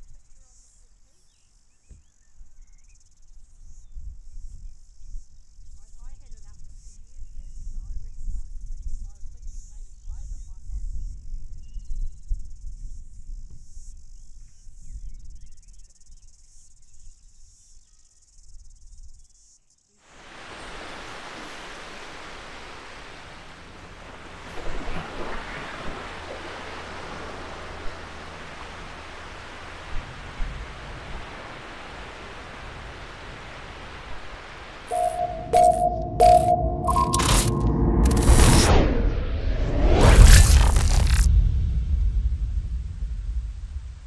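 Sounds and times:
low rumble: 0:34.9 - 0:44.0.

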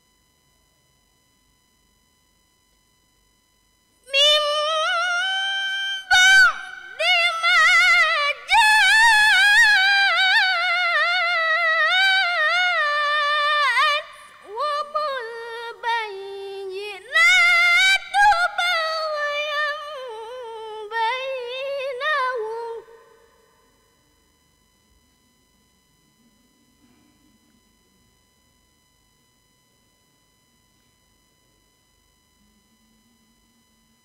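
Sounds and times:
girl reciting melodically: 0:04.1 - 0:22.8.

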